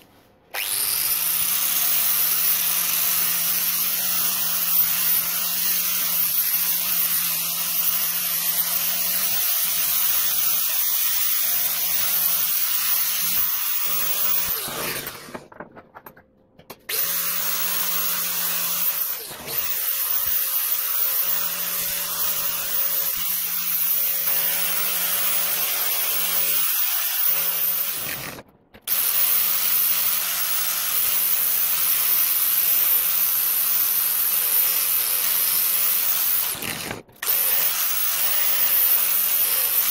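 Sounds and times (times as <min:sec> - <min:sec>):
angle grinder grinding steel: 0:00.6 - 0:15.5, 0:16.9 - 0:39.9.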